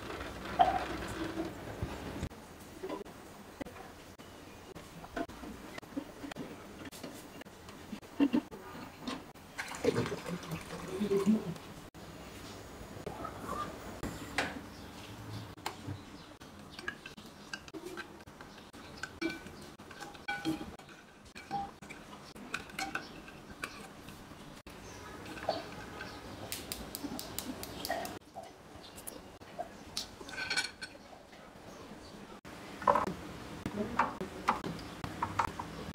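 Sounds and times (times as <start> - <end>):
kitchenware clinking and knocking: 16.7 - 24.0, 25.1 - 26.3, 30.2 - 31.0.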